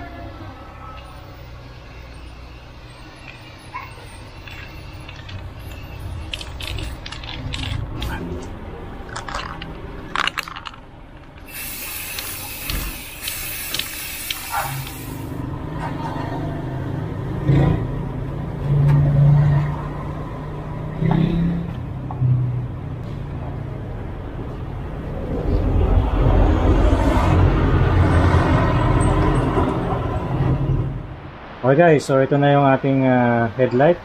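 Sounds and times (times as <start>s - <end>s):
aerosol spray can hissing: 11.5s - 15.4s.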